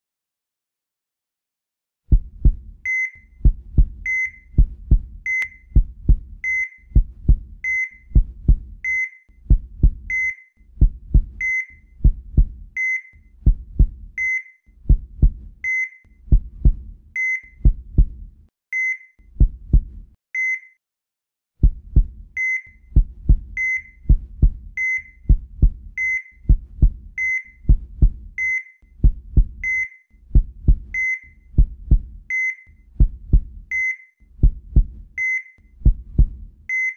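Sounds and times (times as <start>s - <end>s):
heartbeat thumps: 2.1s - 12.8s, 13.4s - 15.7s, 16.3s - 18.4s, 19.4s - 20.2s, 21.6s - 33.8s, 34.4s - 35.2s, 35.8s - 36.6s
heart monitor beeps: 2.1s - 18.2s, 18.8s - 19.8s, 20.4s - 20.8s, 21.6s - 34.0s, 34.7s - 36.9s.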